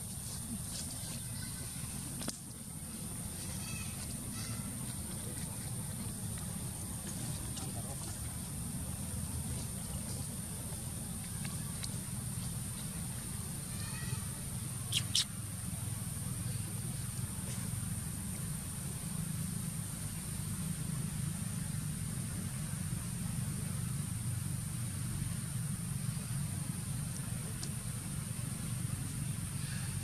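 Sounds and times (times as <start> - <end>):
faint chirps: 0.0 - 17.8
sharp animal squeaks: 14.9 - 15.4.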